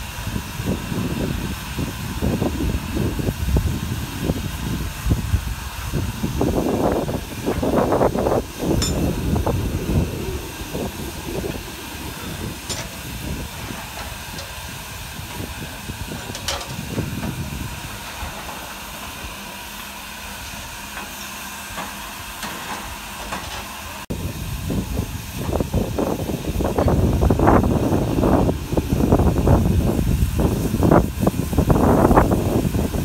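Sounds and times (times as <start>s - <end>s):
steam locomotive hissing: 0.0s - 33.0s
low rumble: 2.9s - 18.6s.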